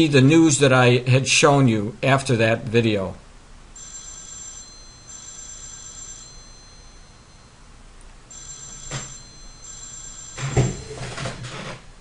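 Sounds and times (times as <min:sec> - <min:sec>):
electronic telephone ringing: 0:03.8 - 0:07.6, 0:08.3 - 0:11.7.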